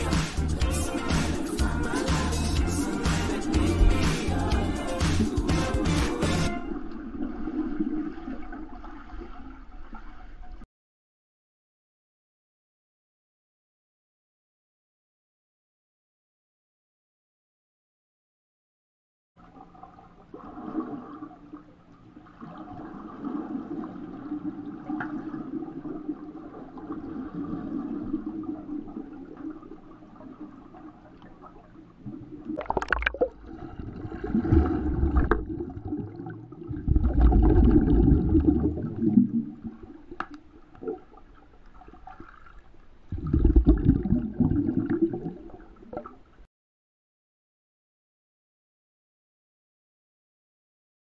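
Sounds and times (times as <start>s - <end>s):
underwater churning and bubbling: 0.0s - 10.6s, 19.4s - 46.4s.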